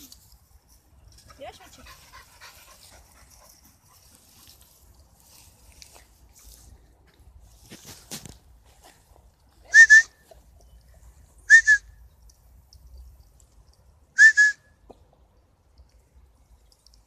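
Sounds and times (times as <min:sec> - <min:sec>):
person whistling to call a dog: 0:09.7 - 0:10.2, 0:11.5 - 0:11.9, 0:14.2 - 0:14.7.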